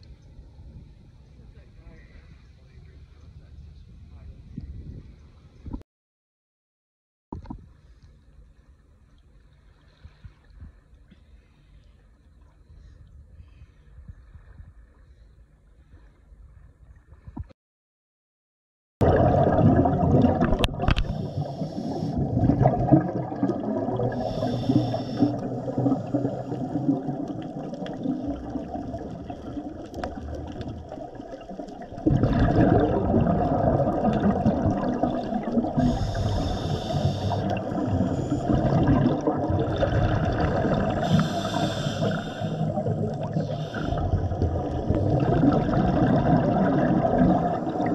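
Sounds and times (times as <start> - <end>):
hissing bubble bursts: 19.0 - 47.9
muffled underwater rushing and gurgling: 19.0 - 47.9.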